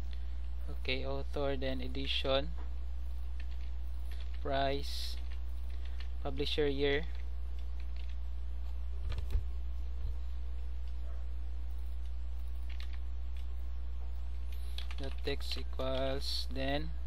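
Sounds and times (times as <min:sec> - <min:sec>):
steady low hum: 0:00.0 - 0:17.0
keyboard keystrokes: 0:07.1 - 0:08.2, 0:12.6 - 0:13.5, 0:14.6 - 0:16.1.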